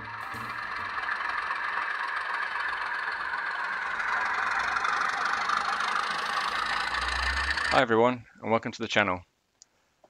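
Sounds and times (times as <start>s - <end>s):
model train motor whirring: 0.0s - 7.9s
wheels rattling on rails: 0.0s - 8.2s.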